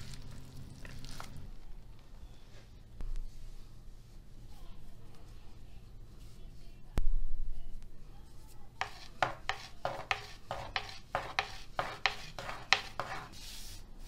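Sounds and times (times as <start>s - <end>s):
rolling pin knocking on marble: 8.8s - 13.2s.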